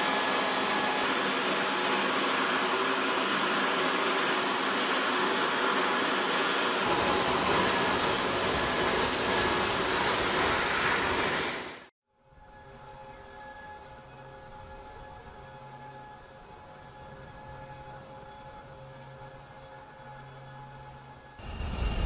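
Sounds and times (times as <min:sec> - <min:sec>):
jet turbine whining and roaring: 0:00.0 - 0:11.9, 0:21.4 - 0:22.0.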